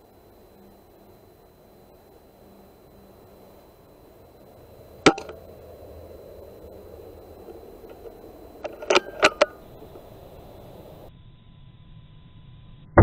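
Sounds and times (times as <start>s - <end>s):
low steady hiss: 0.0s - 12.9s
sharp metallic clicks: 5.0s - 5.4s, 7.4s - 10.1s.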